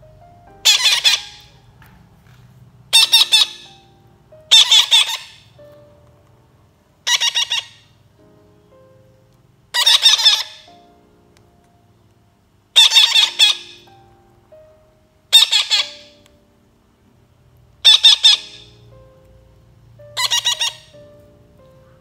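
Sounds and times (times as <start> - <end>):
faint background music: 0.0 - 22.0
baby parakeets squawking: 0.6 - 1.6, 2.9 - 3.8, 4.5 - 5.6, 7.0 - 8.0, 9.7 - 10.7, 12.8 - 13.9, 15.3 - 16.2, 17.8 - 18.8, 20.2 - 21.1.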